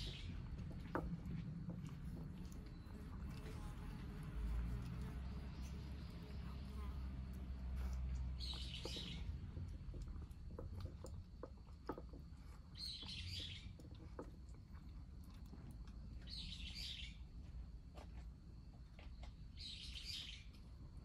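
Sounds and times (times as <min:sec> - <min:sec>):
cat eating from a bowl: 0:00.0 - 0:06.4, 0:07.1 - 0:16.6
low background rumble: 0:00.0 - 0:21.0.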